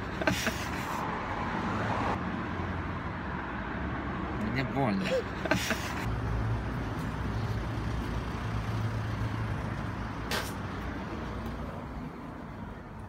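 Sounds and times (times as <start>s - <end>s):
road noise: 0.0s - 13.0s
vehicle engine hum: 0.0s - 13.0s
short hiss: 10.3s - 10.6s.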